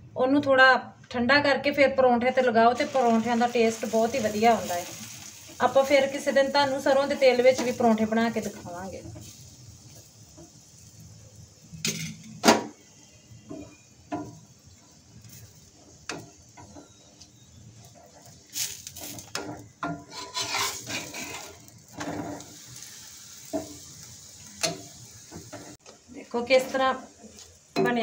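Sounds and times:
spatula scraping and knocking a pan: 13.4s - 22.6s, 23.4s - 23.9s.

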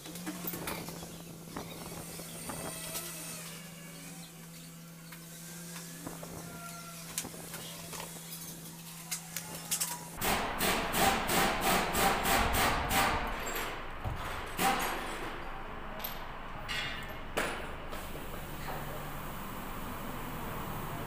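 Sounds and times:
small metal parts clicking: 7.9s - 10.2s.

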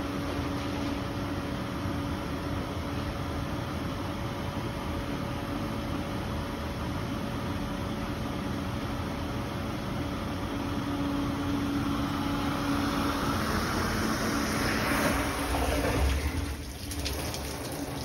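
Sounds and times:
dishwasher humming: 11.8s - 18.0s.

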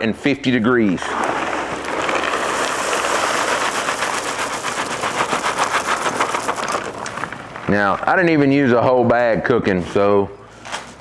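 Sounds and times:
pellets pouring and rattling: 0.8s - 8.7s.

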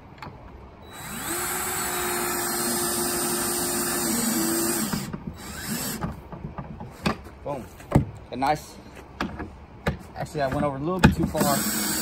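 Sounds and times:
cordless drill driving a screw: 0.9s - 6.0s, 11.3s - 12.0s.

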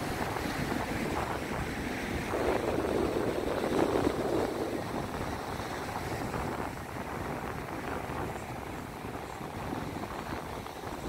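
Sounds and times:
surf washing on beach: 0.0s - 11.0s
wind buffeting microphone: 0.0s - 11.0s.

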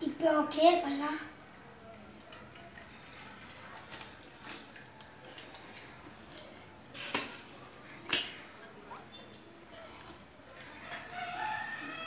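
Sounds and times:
crisp shells cracking: 3.2s - 8.5s.

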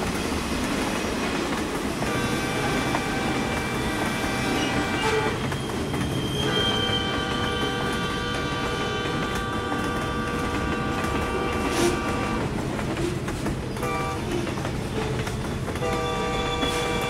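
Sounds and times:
passing train rumble: 0.0s - 17.0s
train horn chord: 2.0s - 5.4s, 6.5s - 12.5s, 13.8s - 14.2s, 15.8s - 17.0s.

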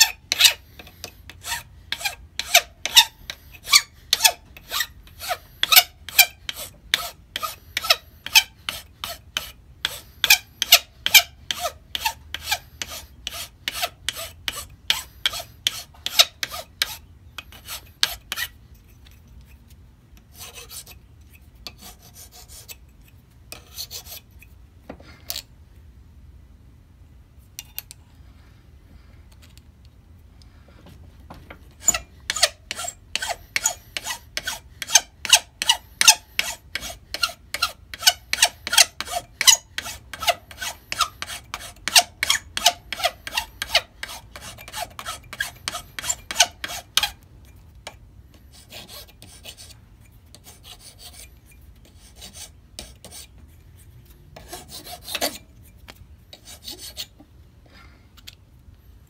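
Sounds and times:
hand file rasping on metal: 0.0s - 18.6s, 20.2s - 21.0s, 21.6s - 22.9s, 23.5s - 24.3s, 31.8s - 47.2s, 47.9s - 53.4s, 54.4s - 55.5s, 56.3s - 57.2s.

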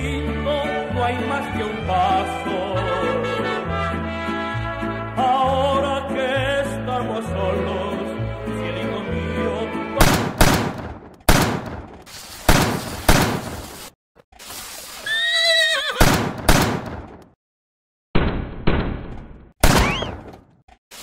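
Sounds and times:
mariachi music: 0.0s - 10.4s
sharp loud bangs: 10.0s - 13.6s, 16.0s - 17.4s, 18.2s - 20.4s
horse whinnying: 15.0s - 16.2s.

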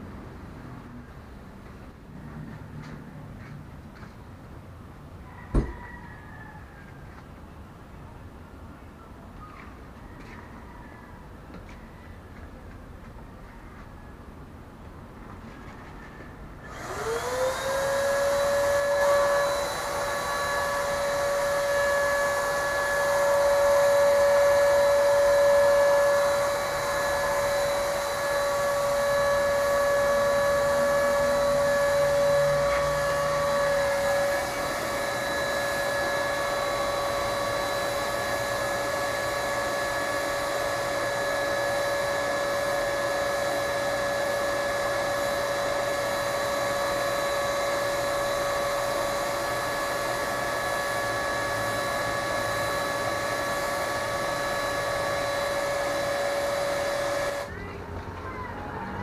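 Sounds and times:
paint sprayer motor whining: 16.6s - 57.6s.

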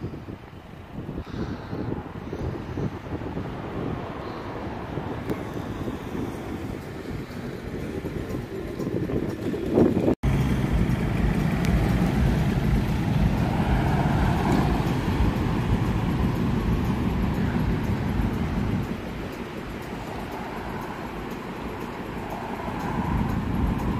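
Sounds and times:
road traffic noise: 0.0s - 23.9s
van driving past: 9.7s - 23.9s.

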